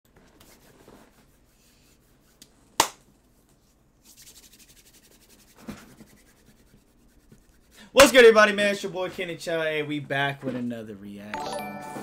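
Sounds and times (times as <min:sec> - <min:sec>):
palms rubbing together: 0:00.2 - 0:02.8, 0:03.5 - 0:08.3.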